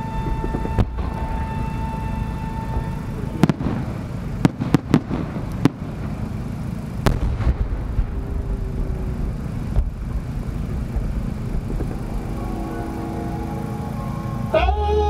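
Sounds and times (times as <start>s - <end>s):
rising shell whistle: 0.0s - 3.8s, 11.6s - 15.0s
firework shells booming: 0.0s - 12.4s.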